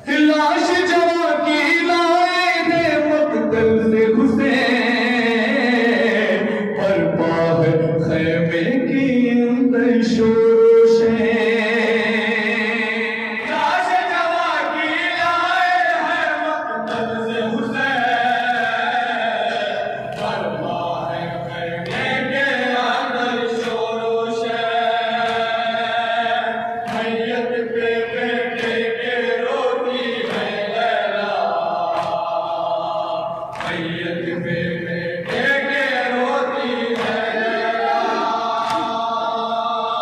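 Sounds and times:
men chanting a lament: 0:00.0 - 0:40.0
chest-beating slaps: 0:26.8 - 0:27.3, 0:36.9 - 0:39.2.

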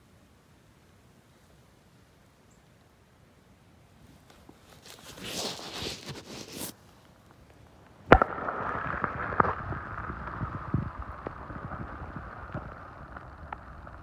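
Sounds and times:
gravel scraping in stream water: 0:04.6 - 0:06.8, 0:08.0 - 0:14.0
muffled water noise: 0:07.2 - 0:14.0.

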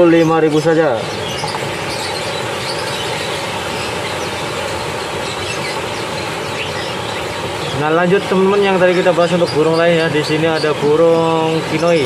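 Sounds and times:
faint bird chirps: 0:00.0 - 0:12.0.

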